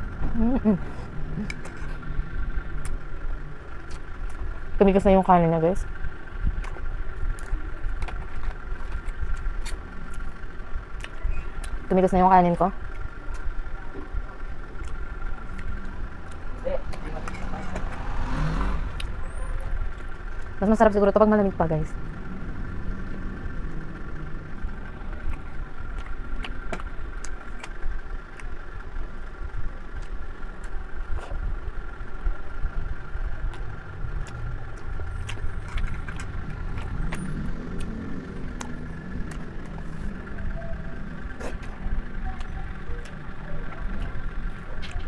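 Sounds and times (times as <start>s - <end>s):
steady low rumble: 0.0s - 45.0s.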